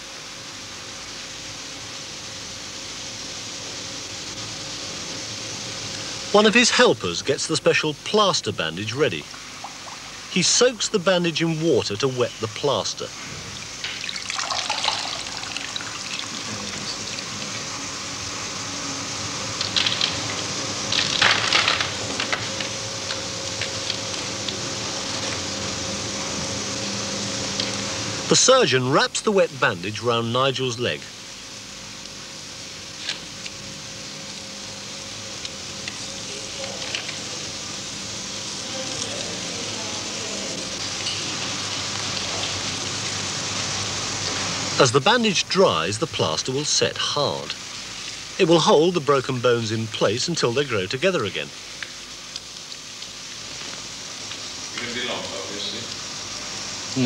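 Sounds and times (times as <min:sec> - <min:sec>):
steady hiss: 0:00.0 - 0:57.0
water splashing in a bucket: 0:13.9 - 0:17.3.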